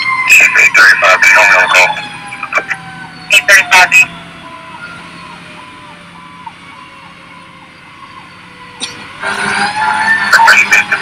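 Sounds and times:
electronic siren rising and falling: 0.0s - 11.0s
engine drone: 0.0s - 11.0s
long siren tone dropping in pitch: 1.0s - 11.0s.

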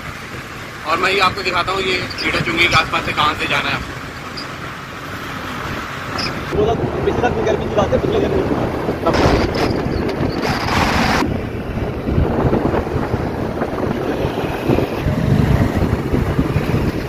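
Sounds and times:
low road rumble: 0.0s - 17.0s
wind buffeting microphone: 0.0s - 17.0s.

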